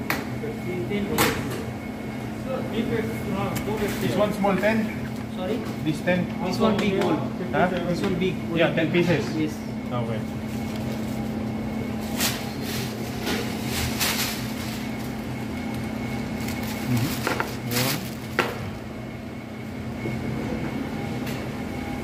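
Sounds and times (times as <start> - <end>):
low mechanical hum: 0.0 - 22.0
plastic bag crinkling: 12.0 - 18.4.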